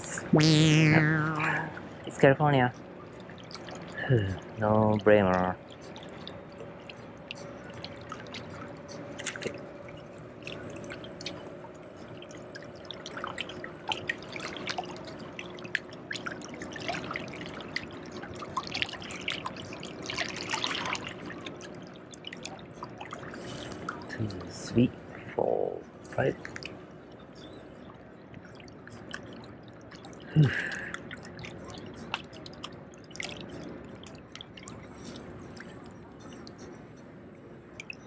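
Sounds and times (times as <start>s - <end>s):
little water splashes: 12.2s - 24.1s, 28.5s - 36.3s.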